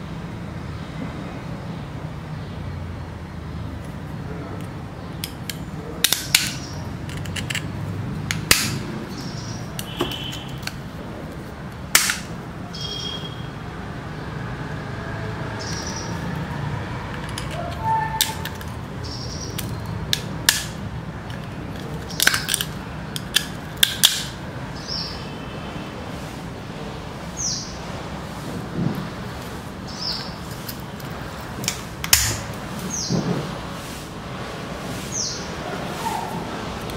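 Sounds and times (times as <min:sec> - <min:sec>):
seashell snapping under pliers: 0:08.3 - 0:08.8, 0:19.5 - 0:24.3.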